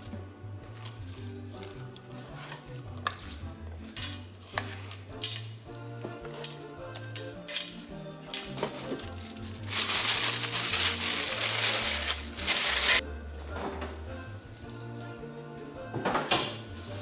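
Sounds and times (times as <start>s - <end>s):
background music: 0.0s - 17.0s
plastic cling wrap crinkling: 7.0s - 13.0s.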